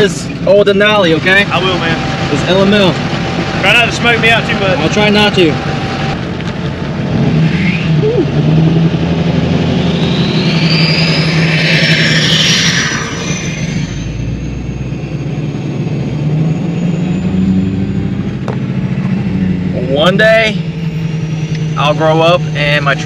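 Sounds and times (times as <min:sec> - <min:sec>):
diesel truck engine accelerating: 0:00.0 - 0:23.0
turbo whistle: 0:09.7 - 0:15.7.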